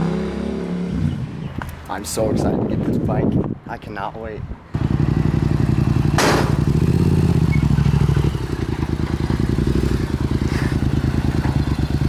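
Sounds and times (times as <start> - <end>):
motorcycle engine idling and revving: 0.0 - 1.8, 4.7 - 12.0
sharp clatter: 6.1 - 6.8.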